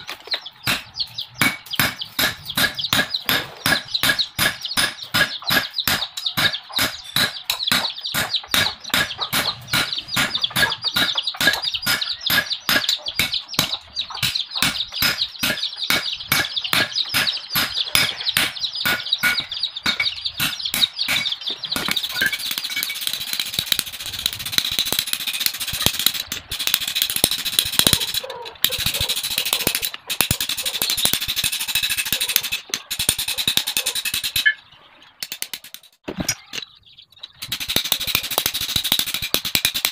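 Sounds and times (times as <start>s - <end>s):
hammer ringing on anvil: 0.7s - 23.0s.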